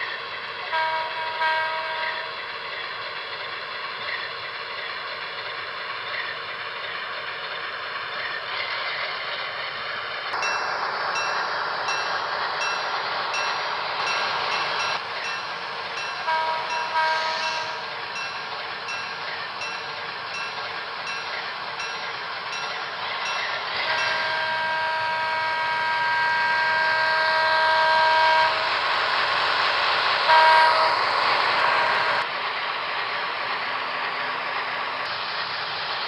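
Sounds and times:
locomotive bell ringing: 0.8 - 2.4, 10.3 - 28.9
short horn blast: 16.2 - 17.8, 23.8 - 28.8, 30.3 - 31.0.

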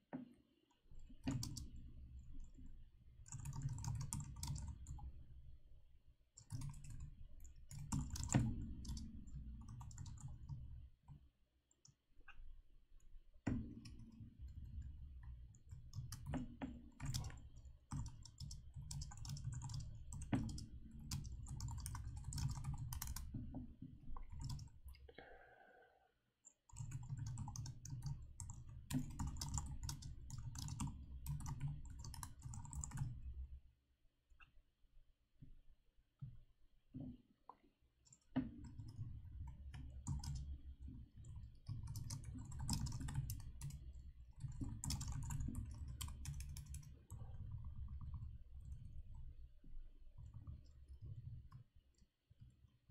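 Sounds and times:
keyboard typing: 1.2 - 1.7, 3.3 - 5.1, 6.4 - 10.7, 15.6 - 23.3, 24.2 - 24.8, 26.7 - 33.2, 39.8 - 40.5, 41.3 - 49.0.

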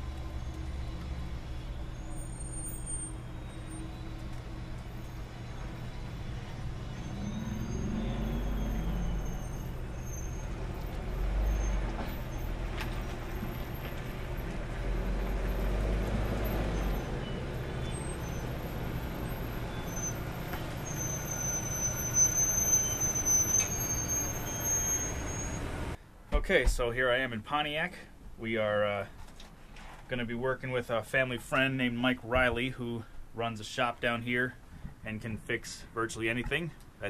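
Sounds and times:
motorhome engine rumble: 0.0 - 26.0.

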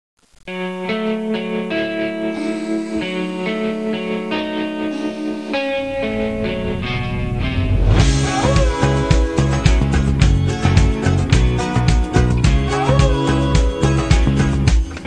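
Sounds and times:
guitar chords: 0.5 - 15.0
bass and beat: 6.1 - 15.0.

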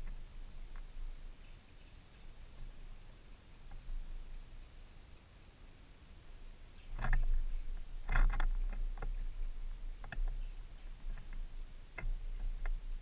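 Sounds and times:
woodpecker tapping on wood: 6.9 - 12.9.

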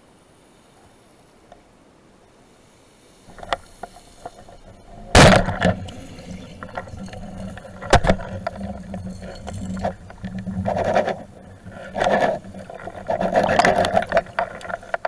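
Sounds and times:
rush of water: 1.3 - 15.0
knocks and clicks: 4.5 - 15.0.

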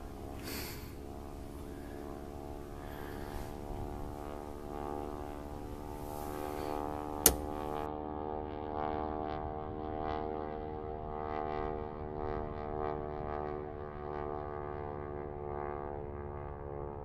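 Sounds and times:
droning music chord: 0.0 - 7.9
sharp click: 7.2 - 7.8.

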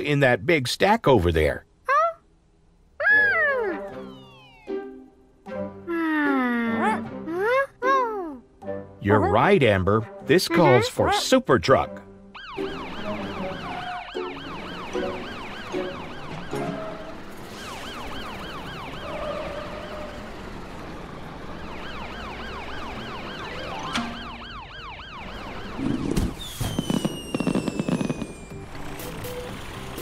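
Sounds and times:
falling whistle: 3.1 - 4.9, 26.2 - 28.7
ambulance siren wailing: 3.2 - 5.0, 12.4 - 29.0.

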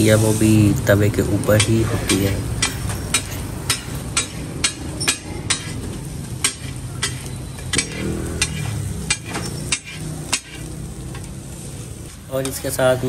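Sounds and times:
oil sizzling: 0.0 - 13.0
cleaver chopping on metal griddle: 1.4 - 11.3, 12.4 - 12.8.

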